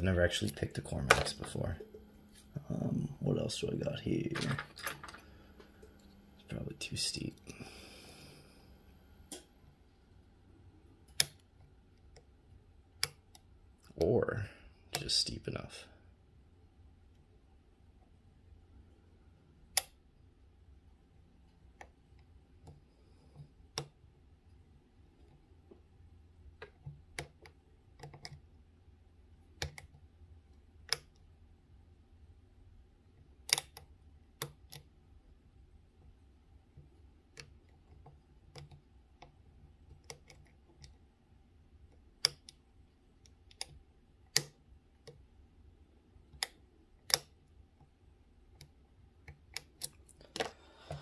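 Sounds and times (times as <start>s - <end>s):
faint steady hum: 0.0s - 51.0s
lock pick metallic clicks: 33.5s - 33.8s, 46.4s - 47.3s.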